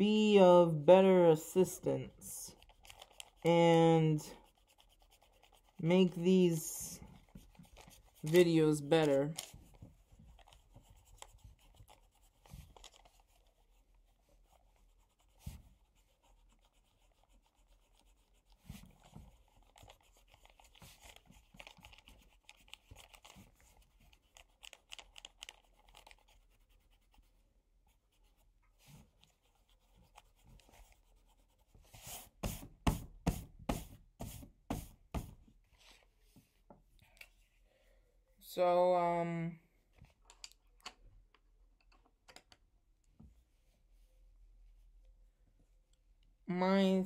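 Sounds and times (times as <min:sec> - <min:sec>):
pen scratching on paper: 0:01.2 - 0:35.4.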